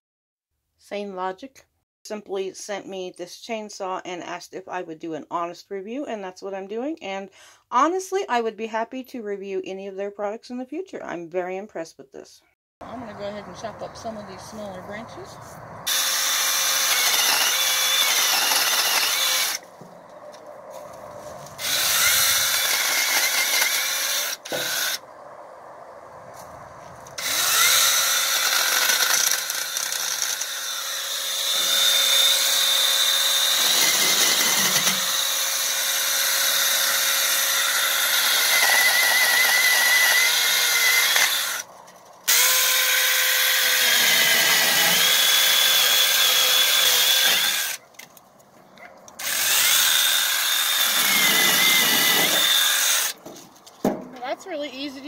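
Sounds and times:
electric chainsaw cutting branches: 0:15.9 - 0:20.4, 0:21.4 - 0:25.0, 0:27.0 - 0:47.8, 0:49.2 - 0:53.2.

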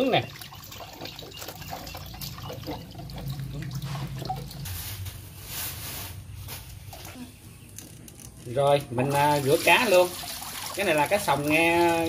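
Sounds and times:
water dripping and trickling: 0:00.0 - 0:04.7, 0:09.0 - 0:12.0.

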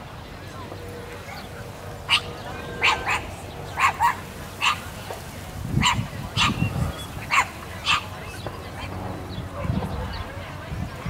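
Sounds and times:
dog barking: 0:02.1 - 0:04.8, 0:05.8 - 0:06.7, 0:07.3 - 0:08.1.

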